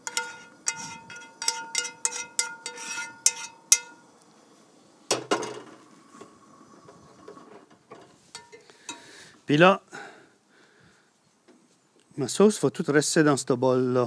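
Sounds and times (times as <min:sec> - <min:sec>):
spoon clinking on skillet: 0:00.0 - 0:04.0, 0:08.3 - 0:09.1.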